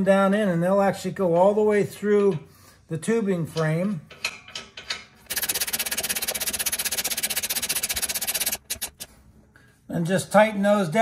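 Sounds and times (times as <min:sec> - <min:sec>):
ratchet wrench clicking: 0:05.3 - 0:09.1.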